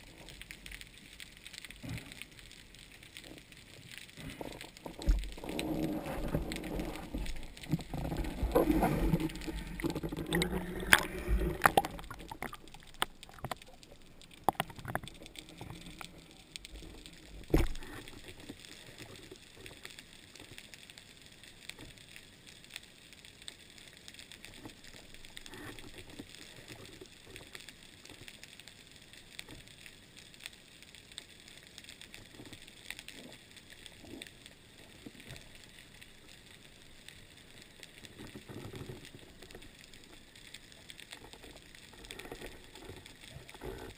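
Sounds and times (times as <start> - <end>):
faint steady hiss: 0.0 - 43.9
underwater knocks and clunks: 4.2 - 16.2, 17.1 - 18.3.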